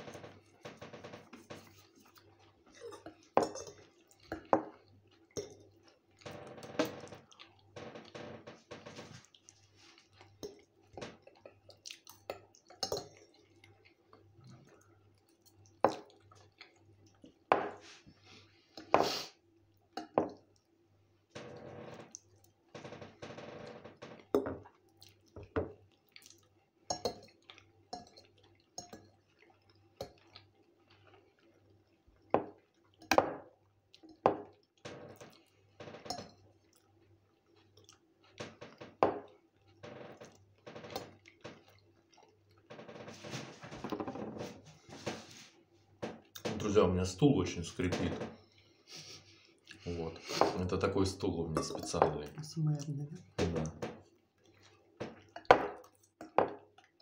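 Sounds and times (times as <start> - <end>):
close-up chewing: 7.2 - 7.8, 9.2 - 17.5, 24.6 - 26.6, 27.3 - 33.0, 36.4 - 38.4.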